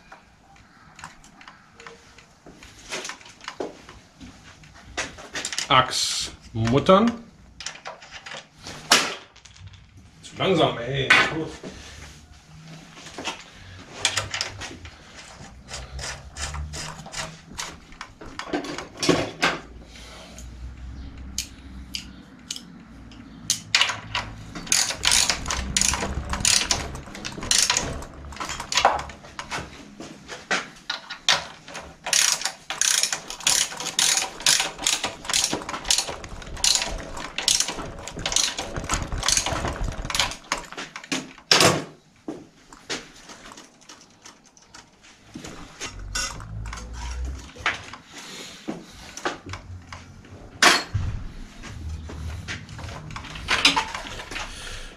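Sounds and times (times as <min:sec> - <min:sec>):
ratchet wrench clicking: 0:23.4 - 0:29.5, 0:32.1 - 0:36.8.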